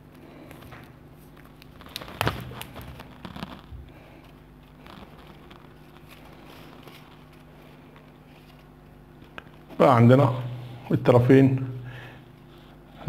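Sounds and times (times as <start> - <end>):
rustling of handled wires: 0.0 - 10.3
tape ripping off roll: 1.4 - 3.9, 4.7 - 7.2.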